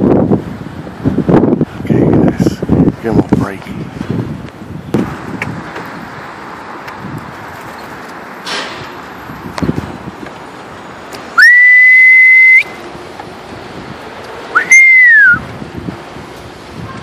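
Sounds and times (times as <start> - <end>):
person whistling loudly: 11.4 - 12.8, 14.5 - 15.4.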